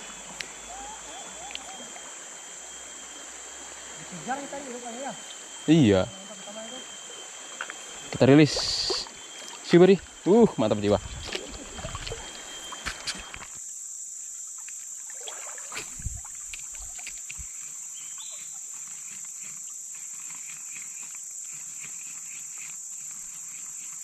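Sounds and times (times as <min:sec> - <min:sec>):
insects droning: 0:00.0 - 0:24.0
water splashing from wading: 0:08.4 - 0:09.9, 0:11.0 - 0:13.1, 0:15.0 - 0:17.0.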